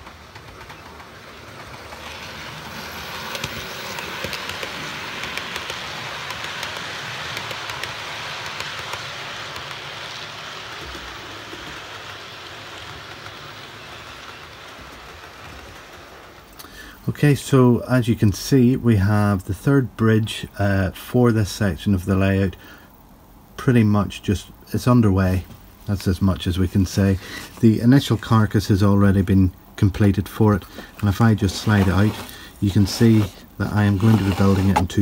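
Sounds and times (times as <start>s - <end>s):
wheels clicking over rail joints: 0.0s - 17.7s, 23.6s - 35.0s
model train rolling rattle: 0.0s - 35.0s.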